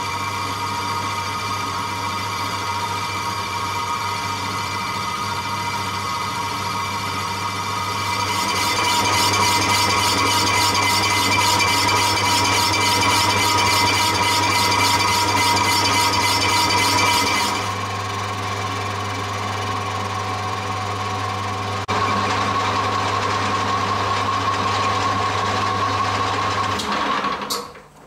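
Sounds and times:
lathe tool cutting metal: 0.0 - 20.1
lathe motor hum: 0.0 - 27.5.

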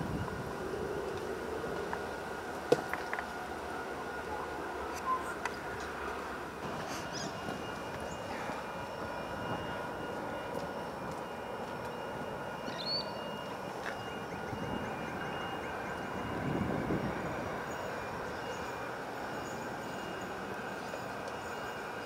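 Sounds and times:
electric train rumbling hum: 0.0 - 22.0
bird chirp: 7.1 - 7.4, 12.7 - 13.3.

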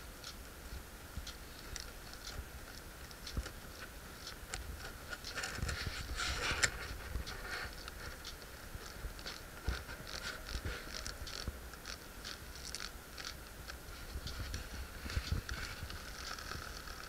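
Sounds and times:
moth wings fluttering crackle: 4.5 - 17.0.

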